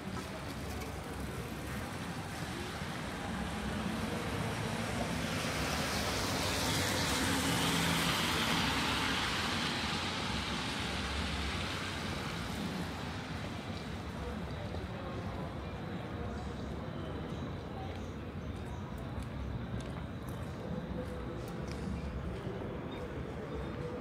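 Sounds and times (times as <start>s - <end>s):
tyre hiss on wet street: 0.1s - 15.1s.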